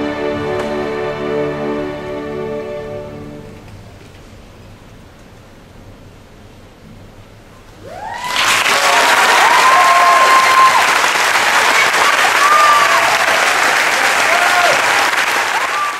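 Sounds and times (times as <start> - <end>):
whooping cheers: 7.8 - 15.9
audience applause: 7.9 - 15.9.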